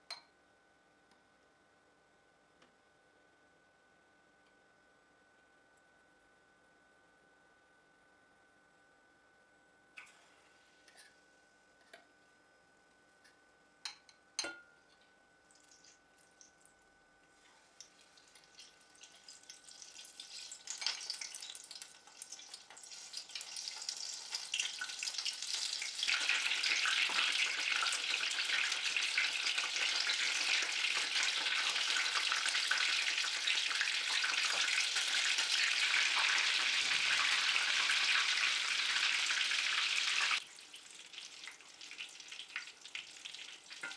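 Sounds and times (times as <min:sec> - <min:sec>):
shrimp sizzling in hot oil: 0:17.7 - 0:43.9.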